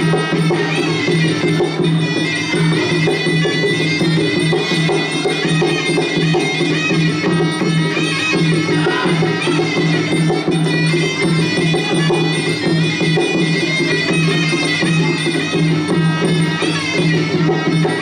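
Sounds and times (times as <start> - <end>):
drums: 0.0 - 18.0.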